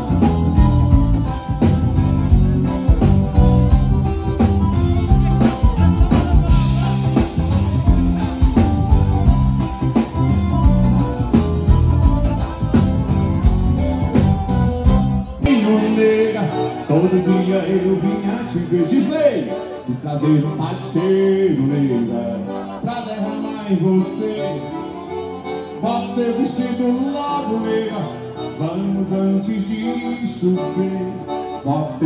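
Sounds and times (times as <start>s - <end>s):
steady drum beat: 0.0s - 15.5s
bass guitar: 0.0s - 32.0s
electric guitar: 0.0s - 32.0s
live band playing: 0.0s - 32.0s.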